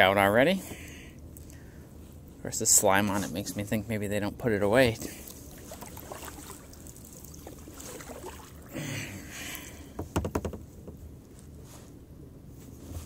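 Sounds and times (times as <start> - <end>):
paddle dipping and dripping: 5.0 - 10.6.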